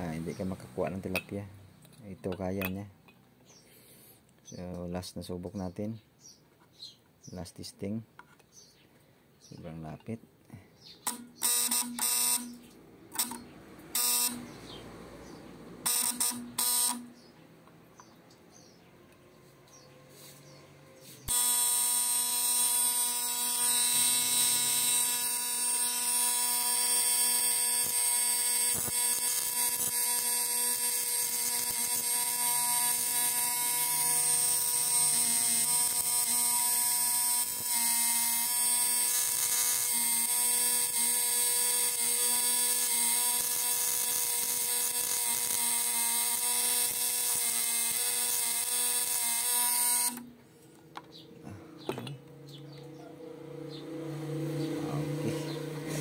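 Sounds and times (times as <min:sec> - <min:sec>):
loud electrical buzz: 0:00.0 - 0:01.7, 0:11.0 - 0:17.3, 0:19.4 - 0:50.4, 0:53.3 - 0:56.0.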